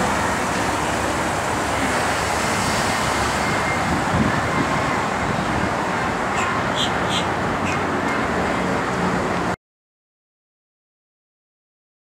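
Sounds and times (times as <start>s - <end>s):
car engine and road noise: 0.0s - 9.6s.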